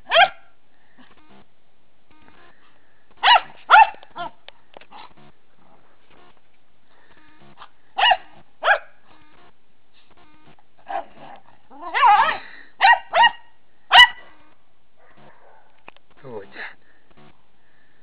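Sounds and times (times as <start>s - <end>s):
dogs barking: 0.1s - 0.5s, 3.2s - 4.4s, 8.0s - 8.9s, 11.8s - 14.4s, 15.0s - 15.8s.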